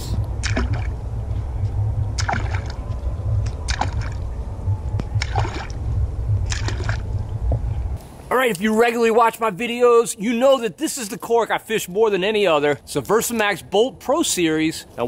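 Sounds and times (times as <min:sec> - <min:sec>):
low rumble of water: 0:00.0 - 0:08.0
popping cork splashing: 0:00.4 - 0:01.0.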